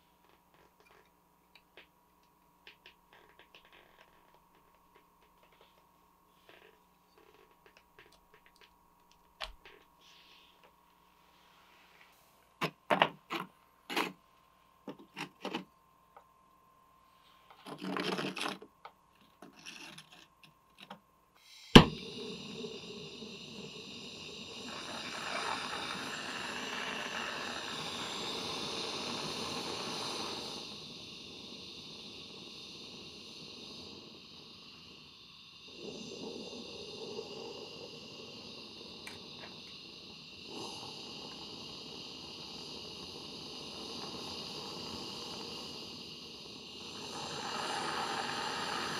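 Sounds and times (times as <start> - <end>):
torch flame hissing: 21.4 - 48.9.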